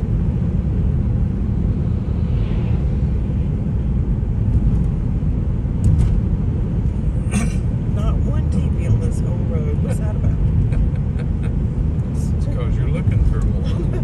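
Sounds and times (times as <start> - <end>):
tyres rumbling heard inside car: 0.0 - 14.0.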